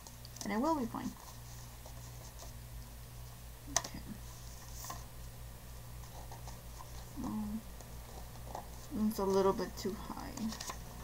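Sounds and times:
steady low hum: 0:00.0 - 0:11.0
paper scratching: 0:06.0 - 0:07.2.

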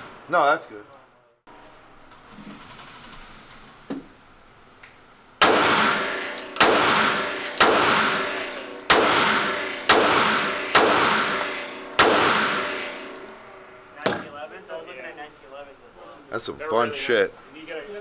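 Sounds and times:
pistol shots echoing indoors: 0:05.4 - 0:13.2.

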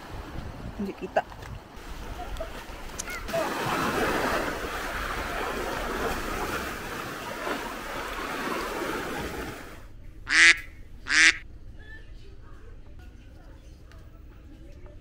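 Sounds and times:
surf washing on beach: 0:00.0 - 0:09.9
loud short pitched calls: 0:10.3 - 0:12.2.

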